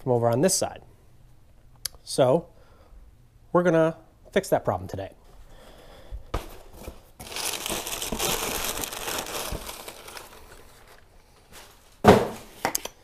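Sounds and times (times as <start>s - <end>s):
packaging crinkling and rustling: 6.7s - 12.0s.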